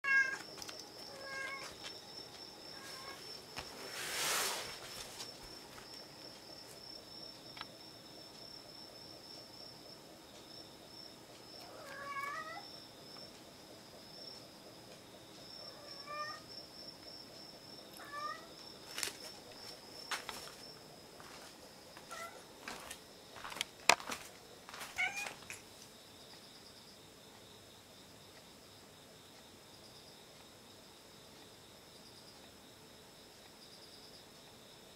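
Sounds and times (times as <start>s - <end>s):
cat meowing: 0.1s - 0.4s, 1.1s - 1.7s, 11.7s - 12.6s, 15.7s - 16.4s, 18.0s - 18.5s, 22.1s - 22.4s, 25.0s - 25.4s
rustling swish: 3.7s - 5.2s.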